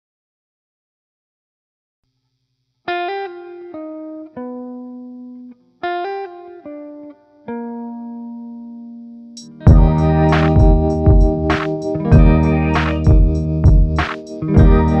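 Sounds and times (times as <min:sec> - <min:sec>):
plucked string melody: 0:09.5 - 0:15.0.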